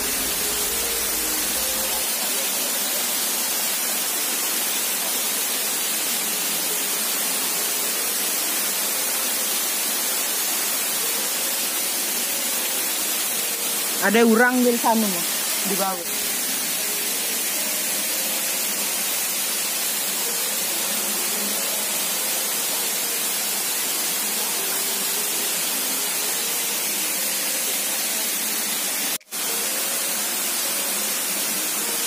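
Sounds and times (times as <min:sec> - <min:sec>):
waterfall rushing: 0:00.0 - 0:32.0.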